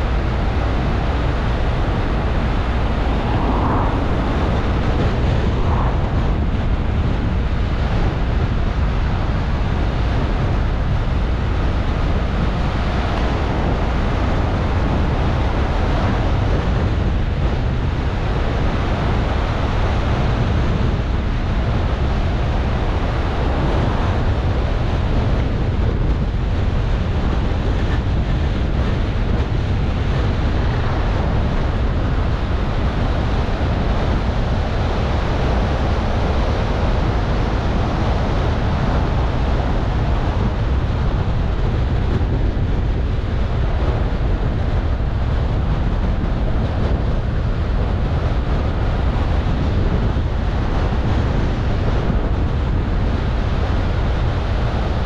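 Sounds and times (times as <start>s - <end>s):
car road noise rumble: 0.0s - 55.0s
wind rushing hiss: 1.8s - 7.5s.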